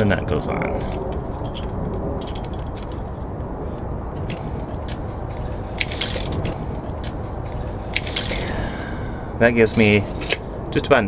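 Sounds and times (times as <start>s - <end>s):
low background rumble: 0.0s - 11.0s.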